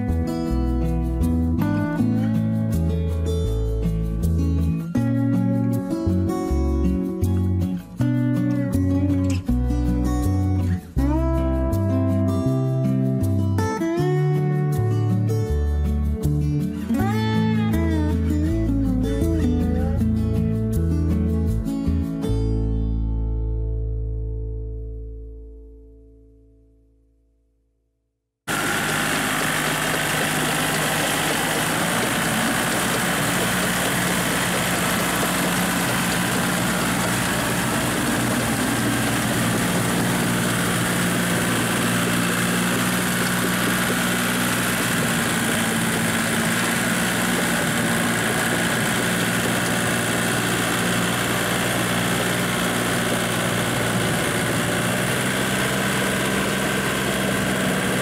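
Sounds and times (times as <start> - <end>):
tractor diesel engine running: 0.0 - 4.4, 28.5 - 58.0.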